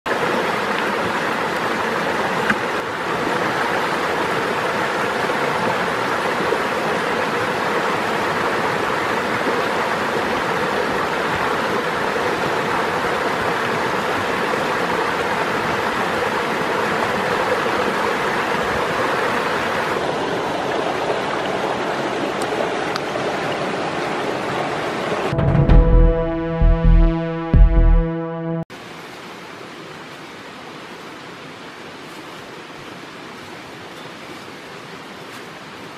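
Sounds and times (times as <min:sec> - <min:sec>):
stream rushing over rocks: 0:00.1 - 0:25.3.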